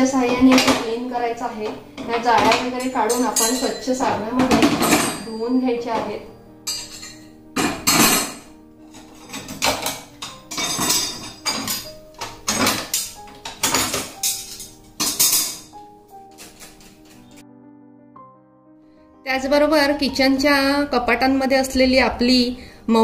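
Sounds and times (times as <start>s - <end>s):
kitchenware clattering: 0.0s - 17.4s
background music: 0.0s - 23.0s.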